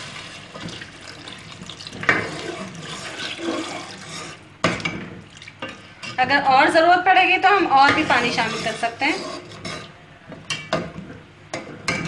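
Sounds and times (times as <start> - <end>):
water pouring into a pot: 0.0 - 4.4
ladle stirring thick gravy: 0.0 - 4.5, 7.9 - 10.0.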